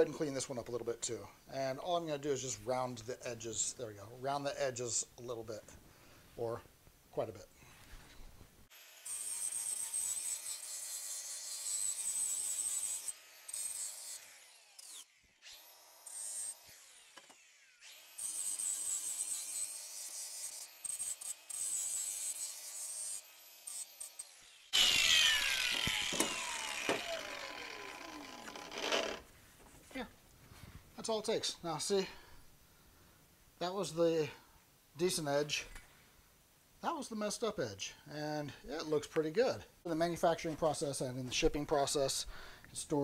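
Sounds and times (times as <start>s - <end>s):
angle grinder whining on steel: 8.7s - 29.3s
grinder disc winding down: 24.7s - 29.3s.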